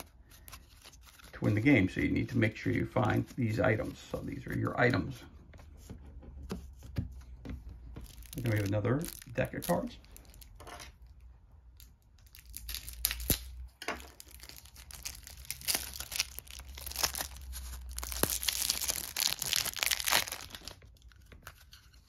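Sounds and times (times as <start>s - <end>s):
cellophane tearing and crinkling: 0.0s - 1.6s, 8.0s - 11.2s, 11.8s - 22.0s.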